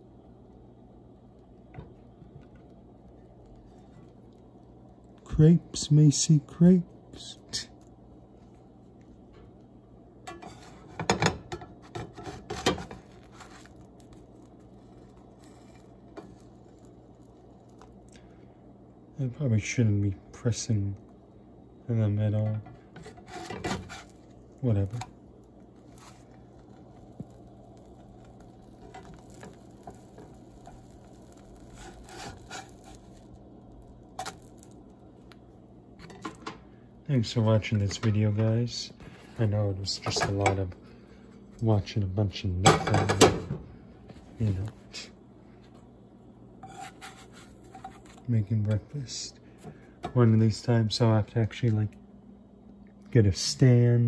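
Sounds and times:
faint hum: 0.0 - 54.0
spatula scraping a frying pan: 10.3 - 11.2, 11.8 - 13.7, 15.4 - 16.4, 23.0 - 24.2, 28.8 - 33.2, 46.6 - 48.3.

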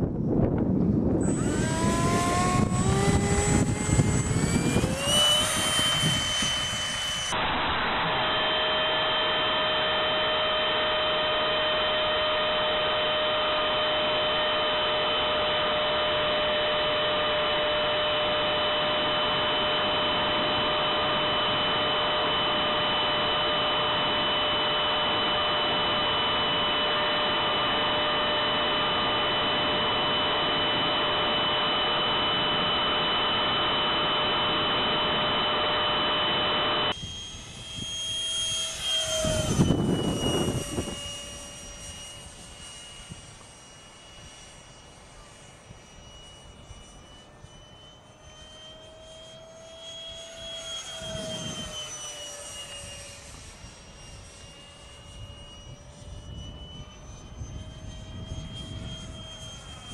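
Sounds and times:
electric fan whine: 0.0 - 59.9
model jet passing: 0.0 - 59.9
rushing air: 0.9 - 9.7.

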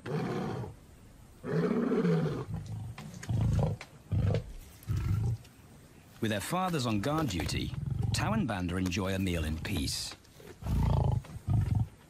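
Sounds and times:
lion grunting: 1.4 - 5.5, 7.3 - 8.5, 10.4 - 12.0
lion roaring: 1.4 - 5.5, 7.4 - 8.4, 10.6 - 12.0.

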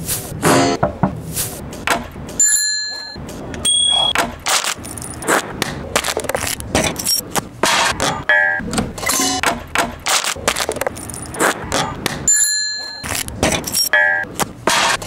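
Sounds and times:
bicycle bell ringing: 2.4 - 4.0, 12.3 - 13.1.

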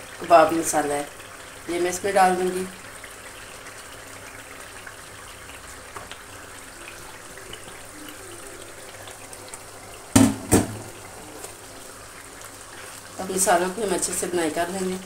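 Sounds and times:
gravy simmering and bubbling: 0.0 - 15.0
sharp knocks: 10.2 - 10.9.

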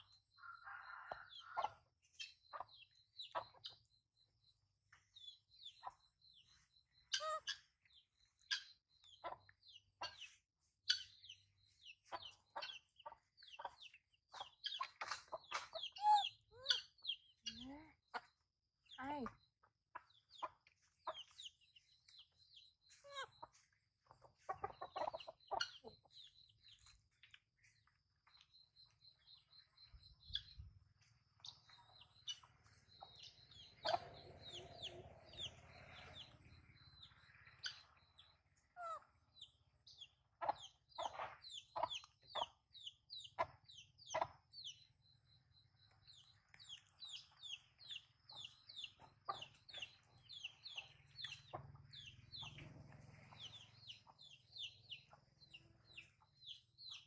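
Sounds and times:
hen clucking: 20.0 - 22.2, 22.8 - 26.4, 32.0 - 36.3, 40.4 - 44.4, 48.3 - 54.7.

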